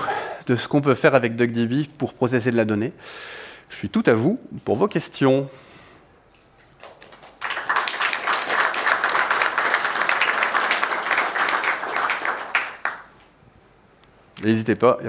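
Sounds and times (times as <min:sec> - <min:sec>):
audience applauding: 0:06.8 - 0:13.2.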